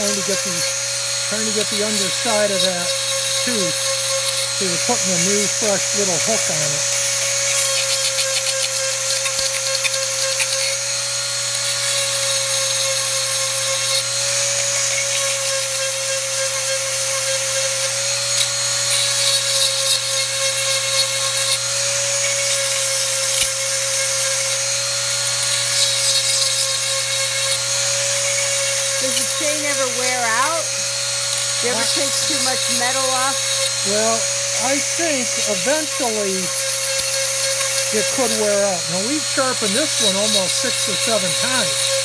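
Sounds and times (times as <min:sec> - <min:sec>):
grinding on metal: 0:00.0 - 0:42.0
rotary tool whine: 0:00.0 - 0:42.0.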